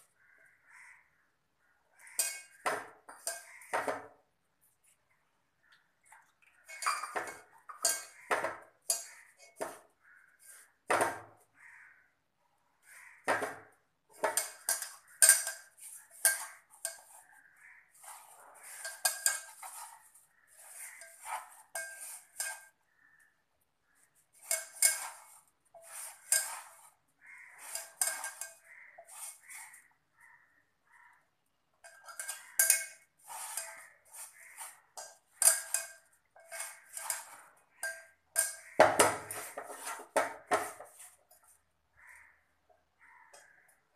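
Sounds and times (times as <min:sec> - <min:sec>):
metal pot clinking and ringing: 0:02.2 - 0:03.7, 0:06.6 - 0:09.7, 0:14.2 - 0:17.2, 0:18.0 - 0:22.8, 0:24.4 - 0:29.9, 0:31.8 - 0:41.5
glass bangles clinking: 0:06.7 - 0:08.2.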